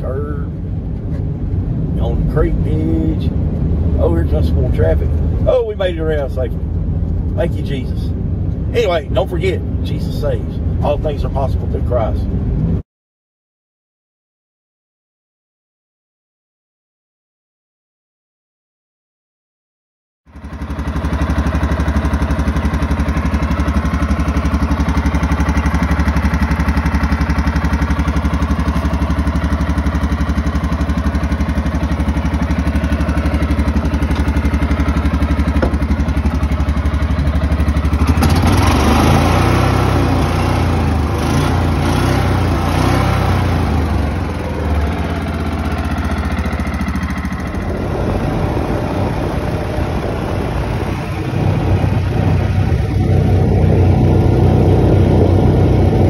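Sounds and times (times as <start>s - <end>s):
utility vehicle engine idling: 20.3s - 56.0s.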